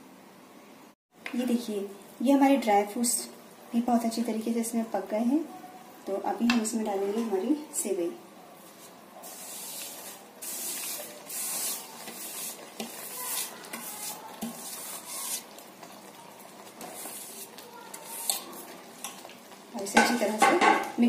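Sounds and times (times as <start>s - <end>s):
syrup sizzling: 8.6s - 21.0s.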